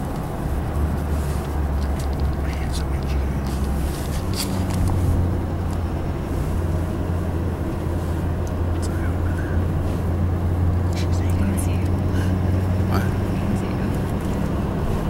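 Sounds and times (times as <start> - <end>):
truck engine drone: 0.0 - 15.0.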